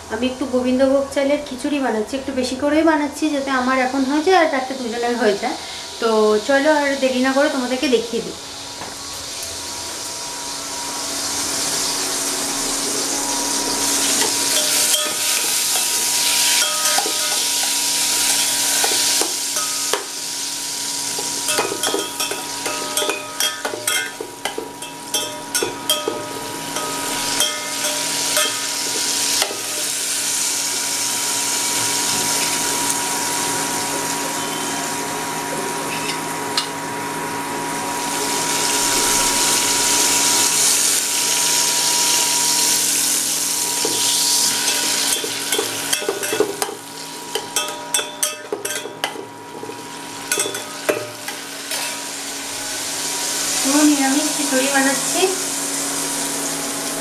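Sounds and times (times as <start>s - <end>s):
food sizzling in hot oil: 3.2s - 57.0s
steel ladle scraping a pot: 13.8s - 20.1s, 21.0s - 30.2s, 43.7s - 46.7s, 47.3s - 52.1s.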